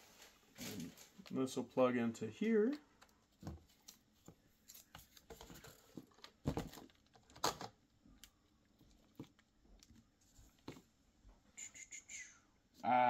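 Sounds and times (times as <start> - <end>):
cable and plastic parts handling: 2.6 - 10.9.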